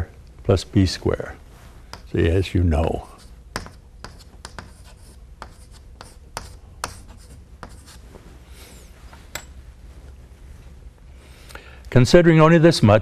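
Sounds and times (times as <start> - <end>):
chalk tapping and scraping on blackboard: 1.8 - 8.0.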